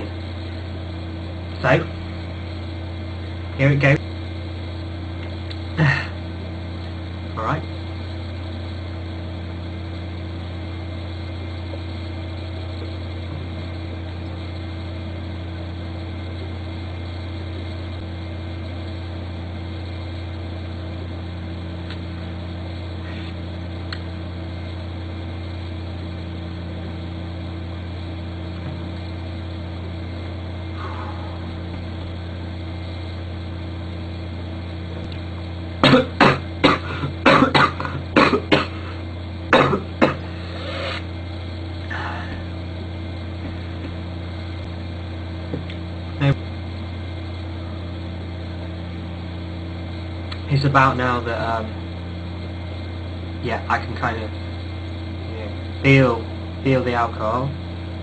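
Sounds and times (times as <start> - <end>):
low electrical hum: 0.0 - 58.0
man coughing hard: 5.8 - 6.2, 35.8 - 40.4.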